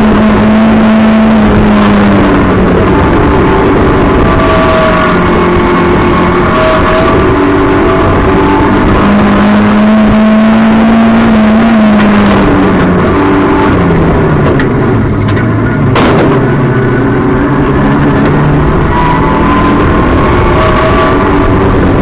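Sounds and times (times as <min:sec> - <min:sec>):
race car engine running hard: 0:00.0 - 0:22.0
sharp knock: 0:15.9 - 0:16.5.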